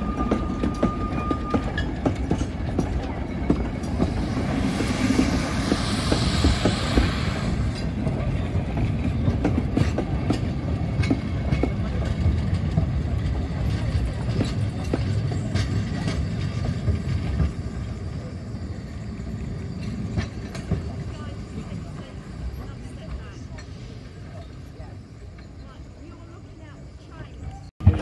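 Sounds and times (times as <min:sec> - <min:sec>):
train wagons clicking over rail joints: 0:00.0 - 0:18.3, 0:19.5 - 0:26.4
steam hissing: 0:03.7 - 0:08.2.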